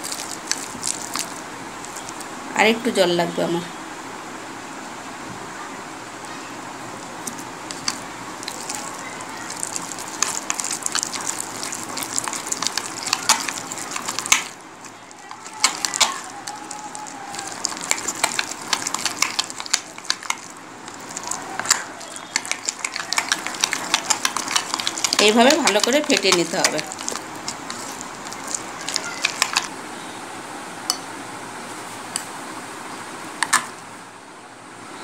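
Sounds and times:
hand beating wet batter: 0.0s - 2.3s, 7.2s - 29.7s.

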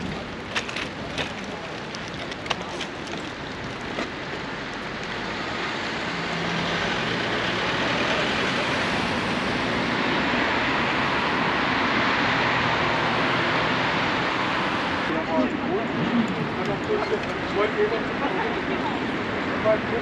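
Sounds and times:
cars driving past: 4.3s - 20.0s.

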